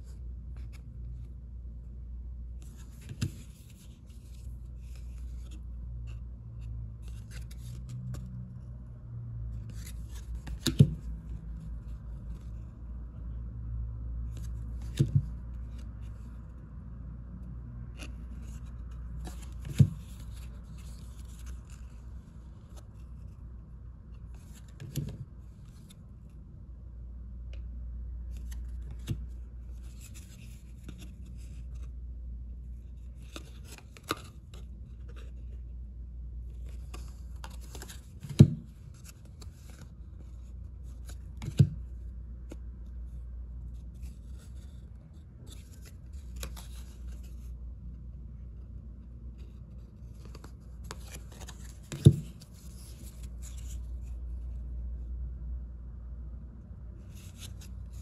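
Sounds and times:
cards sliding and rustling: 2.6s - 8.3s, 9.6s - 11.4s, 17.9s - 23.4s, 24.1s - 26.1s, 28.3s - 32.0s, 32.7s - 35.6s, 36.4s - 47.6s, 49.4s - 54.4s, 57.0s - 58.0s.

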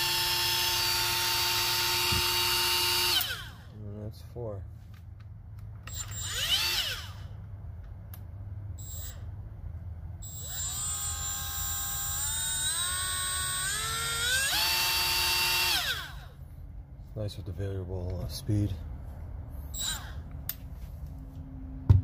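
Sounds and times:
die grinder whining: 0.0s - 3.7s, 5.9s - 7.4s, 10.2s - 16.4s.

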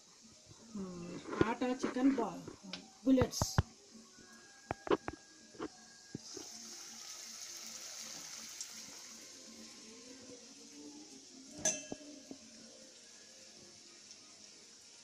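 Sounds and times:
food sizzling in hot oil: 0.1s - 15.0s
metallic clink of steel dish: 11.6s - 12.2s.

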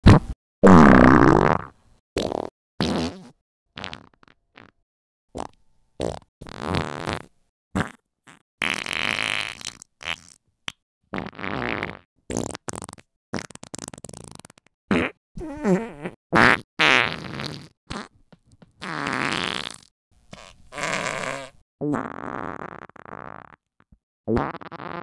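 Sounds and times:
farts: 0.0s - 4.8s, 5.4s - 10.4s, 11.1s - 25.0s.

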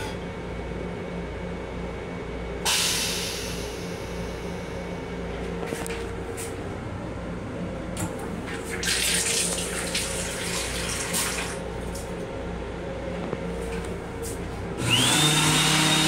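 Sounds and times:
faucet water splashing into basin: 8.7s - 11.6s.

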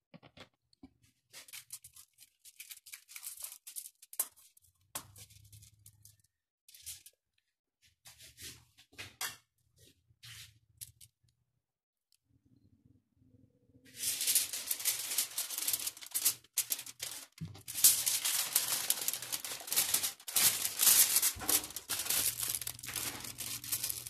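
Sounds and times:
aluminium foil crinkling: 1.3s - 7.2s, 13.9s - 24.0s.

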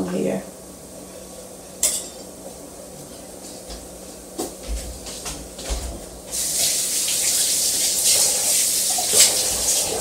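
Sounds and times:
dish or utensil clinking: 1.8s - 2.3s.

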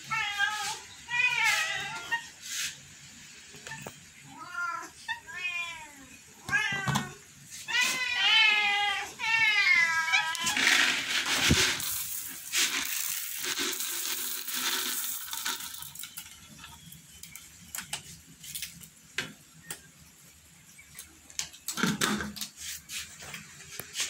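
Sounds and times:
kibble scattering on tile floor: 10.2s - 18.9s
cats crunching kibble: 10.4s - 15.9s.

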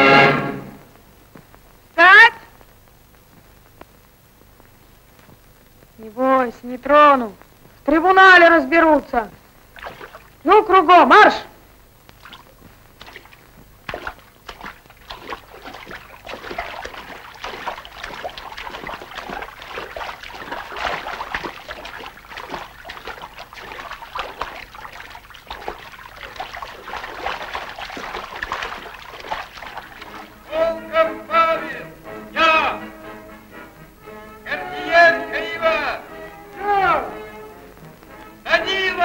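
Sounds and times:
loud music: 0.0s - 0.8s
feet splashing through shallow water: 9.7s - 10.5s, 12.1s - 30.5s.

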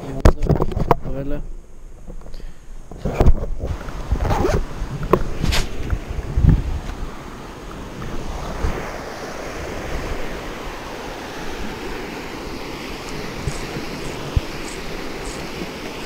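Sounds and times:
wind buffeting microphone: 2.8s - 16.0s
river water rushing over rapids: 3.7s - 16.0s.

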